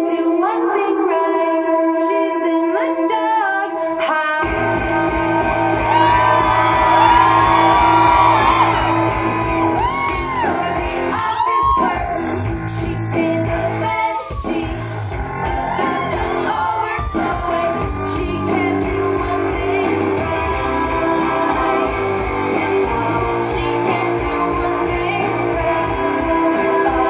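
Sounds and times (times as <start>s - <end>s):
woman singing: 0.0s - 8.9s, 9.8s - 27.0s
steady pop beat: 4.4s - 27.0s.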